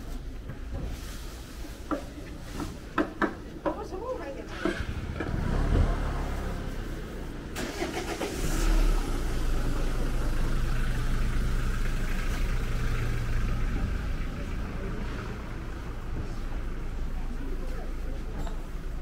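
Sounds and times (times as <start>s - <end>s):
engine low hum: 4.5s - 19.0s.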